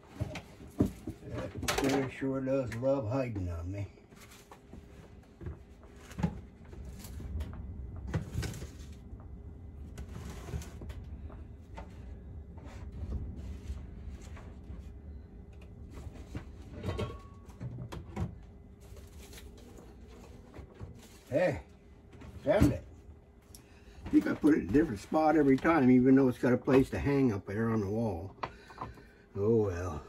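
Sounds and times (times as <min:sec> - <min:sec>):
rummaging through kitchen drawers: 0:15.9 - 0:21.3.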